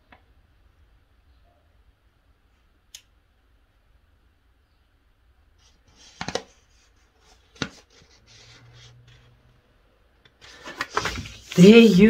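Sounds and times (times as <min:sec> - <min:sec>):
paper rustling: 0:05.6 - 0:09.3, 0:10.4 - 0:12.0.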